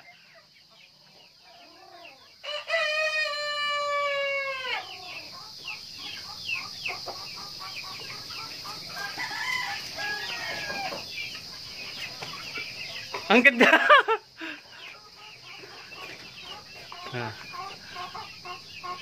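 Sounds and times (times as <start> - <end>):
chickens clucking: 0.0 - 19.0
rooster crowing: 2.0 - 5.2, 8.6 - 11.1.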